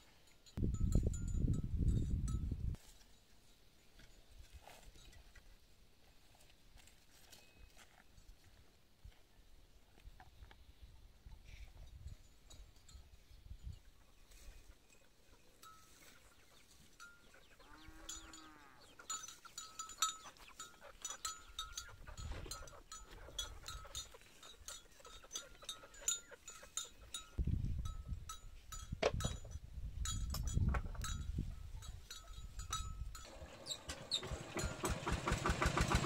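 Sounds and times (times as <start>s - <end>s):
small bell ringing: 0.2s - 2.7s, 17.0s - 33.4s
cow mooing: 17.7s - 18.9s.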